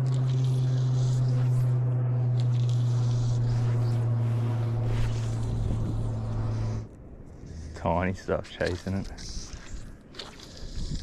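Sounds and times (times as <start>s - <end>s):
loud steady low hum: 0.0s - 8.4s.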